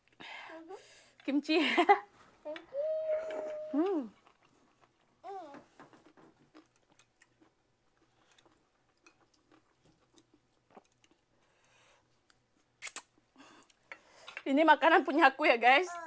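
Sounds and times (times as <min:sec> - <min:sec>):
person chewing: 0:03.2 - 0:05.2, 0:05.9 - 0:13.8.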